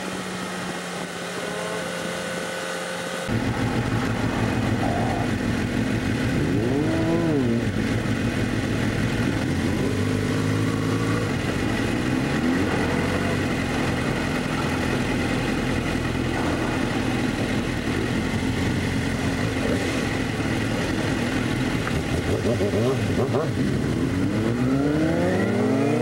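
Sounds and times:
motorcycle engine revving: 0.0 - 26.0
wind and road noise: 0.0 - 26.0.

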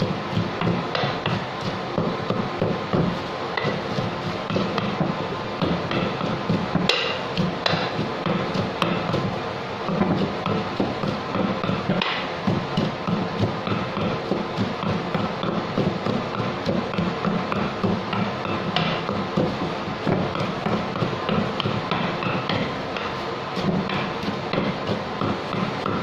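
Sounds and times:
pestle pounding in mortar: 0.0 - 26.0.

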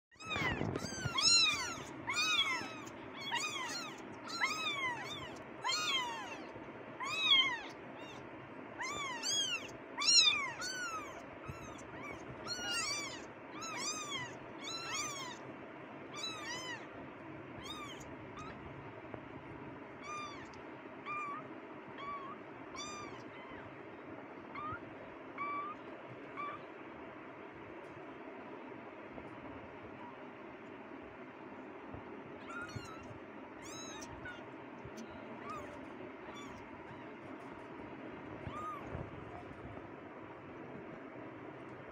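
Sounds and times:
kittens mewing: 0.1 - 15.5, 16.1 - 17.0, 17.6 - 18.8, 20.0 - 23.8, 24.4 - 26.8, 32.4 - 39.8.

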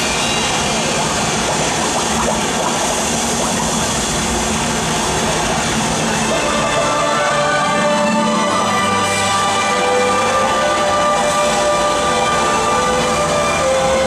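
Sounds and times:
steady water-like rushing: 0.0 - 14.0
faint bubbling pitch glides: 0.2 - 8.0.

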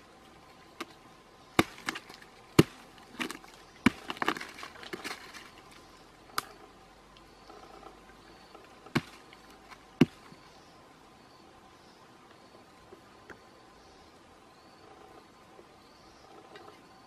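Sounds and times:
crumbling wood crackling: 0.0 - 6.6, 8.5 - 10.4.

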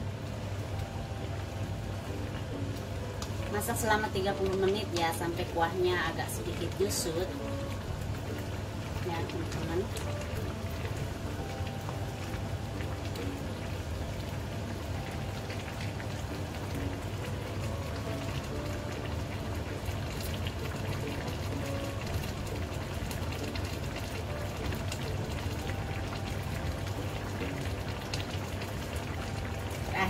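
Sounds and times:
broth bubbling: 0.0 - 30.0.

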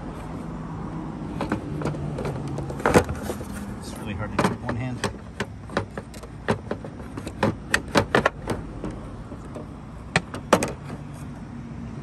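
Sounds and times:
plastic housing clicking and knocking: 1.3 - 3.6, 4.3 - 11.0.

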